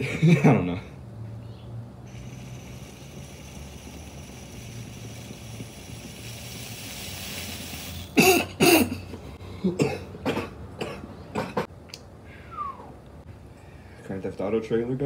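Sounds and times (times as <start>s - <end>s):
air drawn through water pipe: 2.1s - 8.9s
person coughing: 8.2s - 11.7s.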